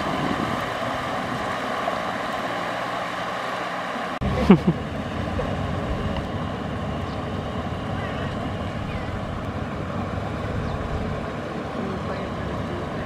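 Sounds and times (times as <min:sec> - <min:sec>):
tractor engine running: 0:00.0 - 0:13.0.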